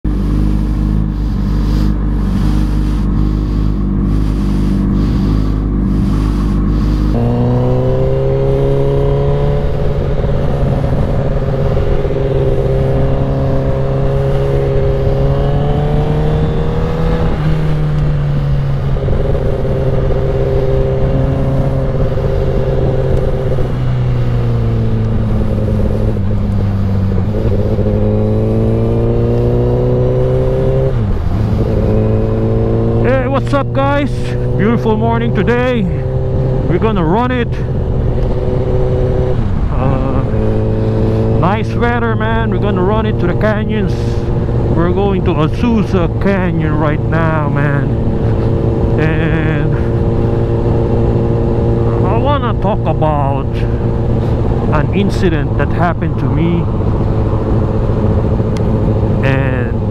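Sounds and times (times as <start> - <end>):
wind rushing over camera: 0.0 - 42.5, 53.7 - 59.9
motorcycle engine: 0.0 - 59.9.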